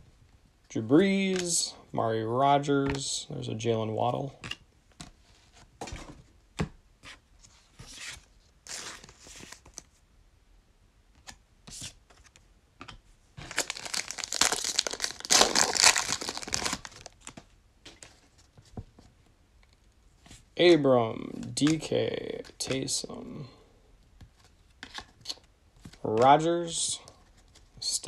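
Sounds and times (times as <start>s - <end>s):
cards and wrappers rustling: 7.4s - 10.0s, 11.7s - 19.1s
foil wrapper tearing and crinkling: 13.5s - 17.2s.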